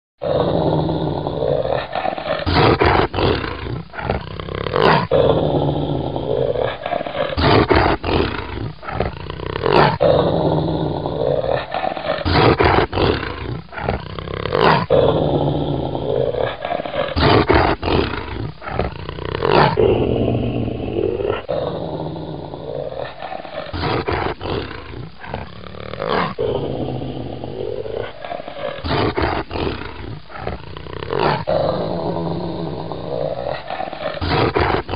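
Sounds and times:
deep monster growls and roars: 0:00.2 - 0:34.9.

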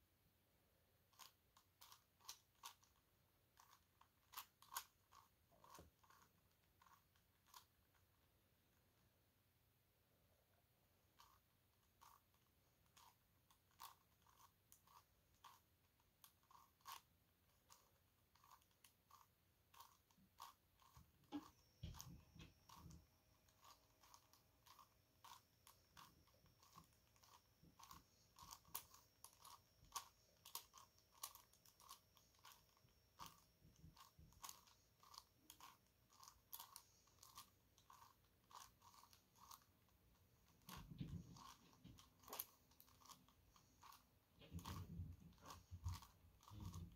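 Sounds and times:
plastic puzzle pieces clicking: 0:16.2 - 0:39.7.

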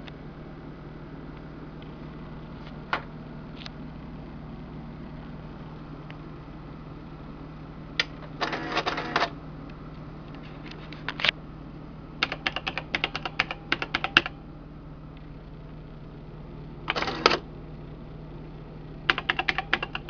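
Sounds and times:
calculator keys clicking: 0:12.2 - 0:14.4, 0:19.1 - 0:20.0.

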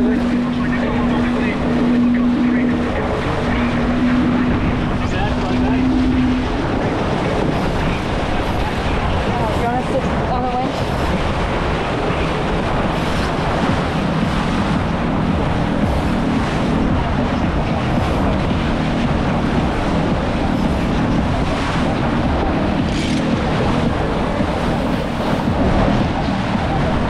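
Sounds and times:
water rushing past hull: 0:00.0 - 0:27.0
wind noise on microphone: 0:00.0 - 0:27.0.

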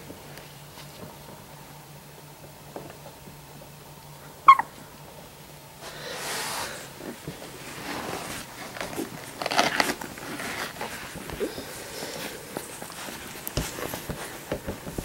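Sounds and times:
puppy squeaking: 0:04.5 - 0:04.8
puppies rustling on bedding: 0:06.0 - 0:15.0.

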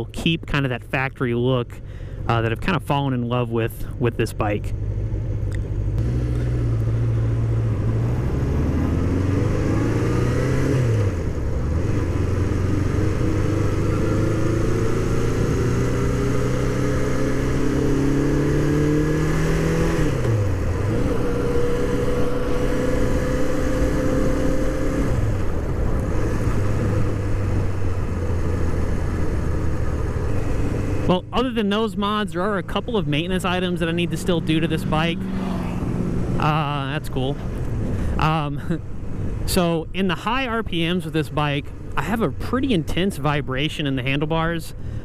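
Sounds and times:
motorcycle engine accelerating: 0:04.4 - 0:44.2.

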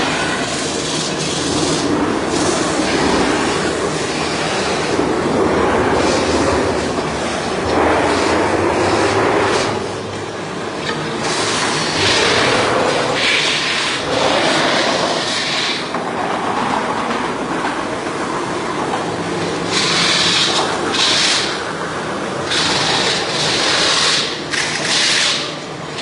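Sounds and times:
harsh metal scraping: 0:00.0 - 0:10.1
lathe rattling rumble: 0:00.0 - 0:26.0.

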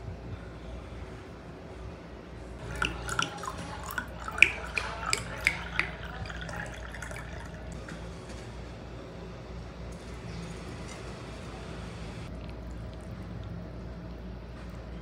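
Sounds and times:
faint steady hum: 0:00.0 - 0:15.0
light drip-like taps: 0:02.6 - 0:07.7.

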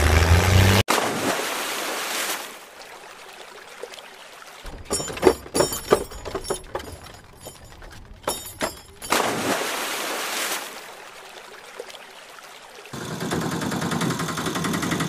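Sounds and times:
clattering knocks: 0:04.7 - 0:09.2
toy cart splashing into water: 0:04.7 - 0:10.8.

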